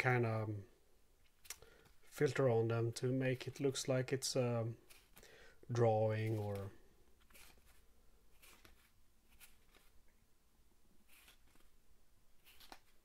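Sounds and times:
cards swishing: 4.8 - 5.3, 6.1 - 10.1, 11.0 - 13.0.

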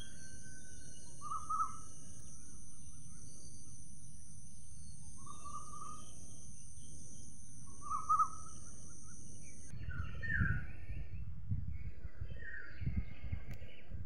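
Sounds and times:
high insect drone: 0.0 - 9.8
birds chirping: 0.0 - 14.0.

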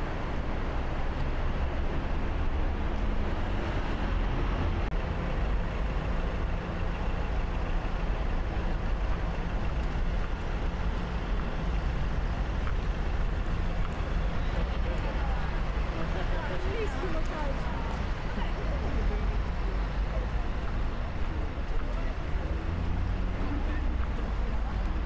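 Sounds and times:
city traffic rumble: 0.0 - 25.0.

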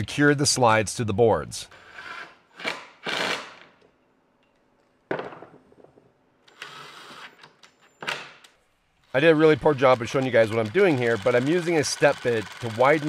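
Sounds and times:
rattling power tool driving bolts: 9.1 - 13.0.

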